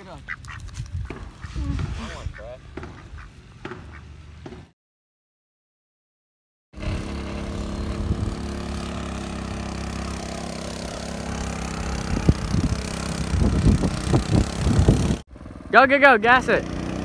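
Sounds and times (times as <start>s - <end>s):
sharp knocks: 2.7s - 4.8s
kart driving through water: 6.8s - 15.8s
go-kart engine running: 6.8s - 17.0s.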